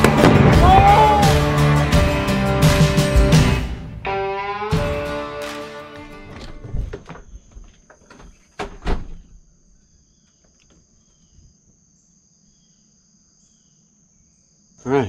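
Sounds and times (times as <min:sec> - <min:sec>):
door opening and knocking shut: 0:06.0 - 0:09.4
high drone of insects: 0:07.3 - 0:15.0.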